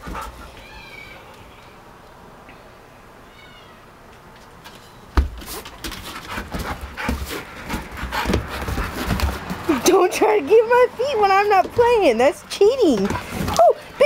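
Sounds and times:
dog scuffling and knocking: 5.2 - 10.0, 11.4 - 12.2.

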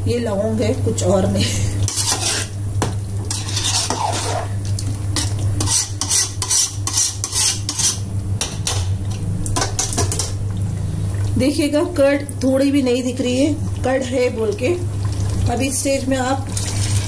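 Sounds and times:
steady low hum: 0.0 - 17.0
metal ladle scraping a pot: 1.9 - 2.6, 3.2 - 4.6, 5.2 - 8.1.

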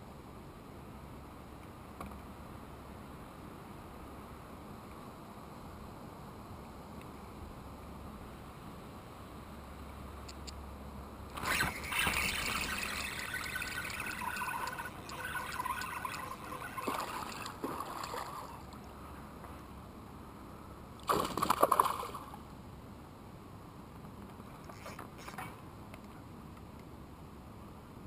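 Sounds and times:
water trickling and splashing: 11.4 - 18.9.

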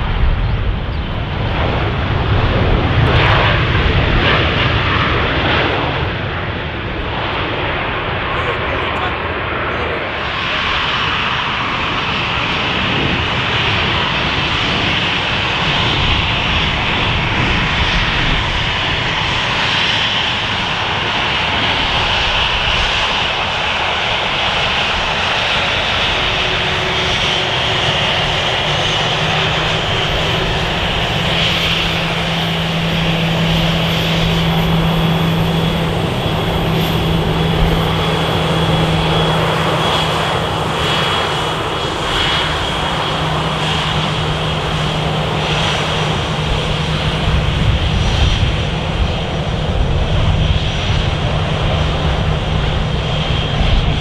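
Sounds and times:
jet engines running: 0.0 - 54.0
wind buffeting microphone: 0.0 - 54.0.

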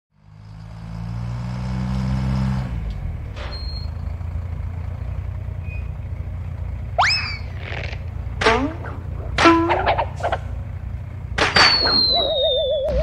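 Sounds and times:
deep hum: 6.9 - 13.0.

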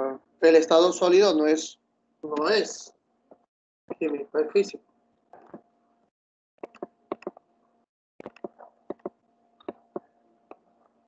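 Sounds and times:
computer mouse clicking: 6.6 - 7.4, 8.2 - 10.6.

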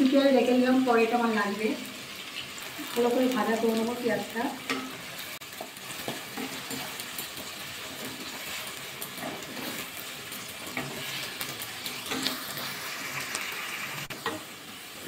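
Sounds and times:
onions sizzling in oil: 0.0 - 15.0
wooden spatula scraping pan: 5.7 - 10.0, 10.6 - 12.8.

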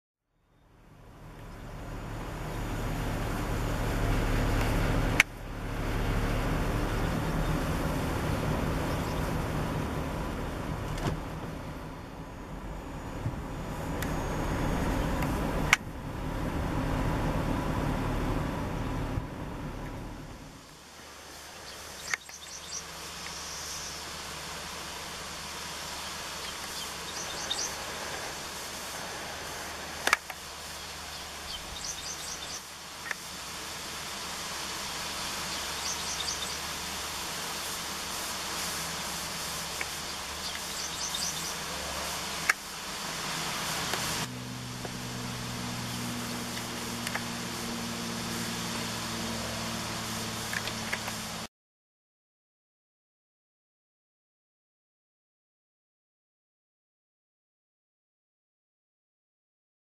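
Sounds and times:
low engine hum: 0.3 - 51.5
car running: 0.4 - 51.5
small birds singing: 6.3 - 11.0, 20.6 - 42.8, 45.2 - 47.4, 50.5 - 51.2
sharp clicks: 22.0 - 22.6.

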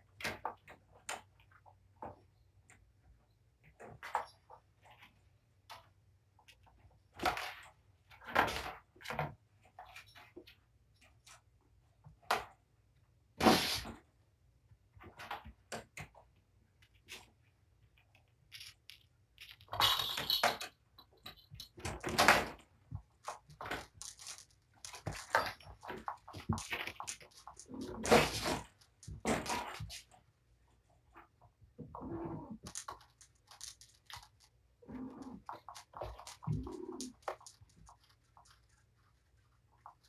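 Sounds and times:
cats scrambling on windowsill: 15.0 - 30.3, 31.1 - 40.0
claws scrabbling: 16.8 - 30.2, 32.1 - 40.0.

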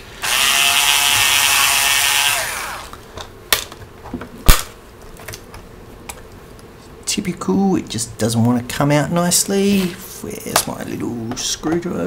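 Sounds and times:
electric screwdriver whirring: 0.2 - 3.0.

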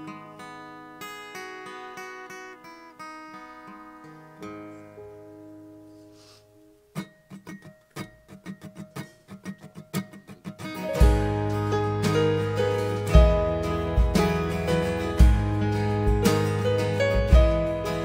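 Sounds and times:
fingerpicked acoustic guitar: 0.0 - 18.0.

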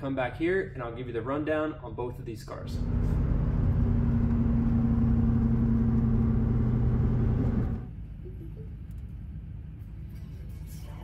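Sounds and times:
vehicle engine and road noise: 2.6 - 11.0.

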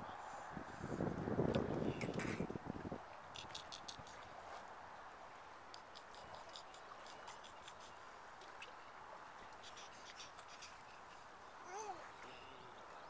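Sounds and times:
soft steady water hush: 0.0 - 13.0
faint high ticks: 3.4 - 4.3, 5.7 - 8.8.

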